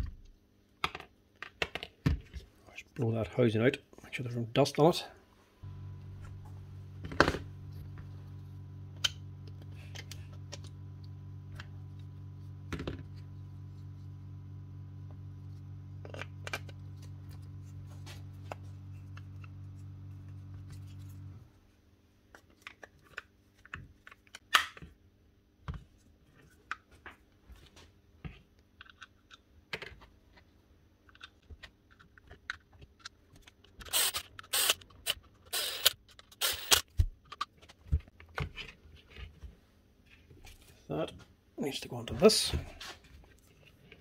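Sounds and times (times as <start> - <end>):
air compressor motor humming: 5.6 - 21.5, 33.9 - 36.8.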